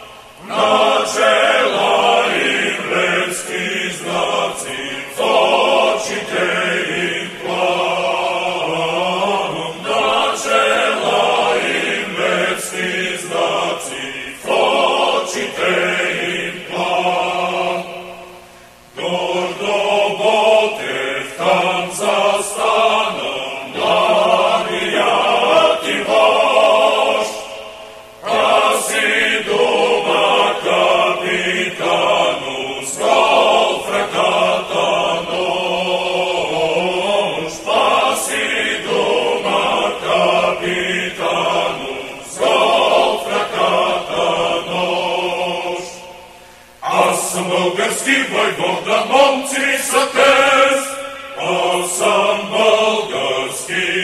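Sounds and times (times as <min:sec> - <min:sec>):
choir singing a slow chant: 0:00.0 - 0:54.0.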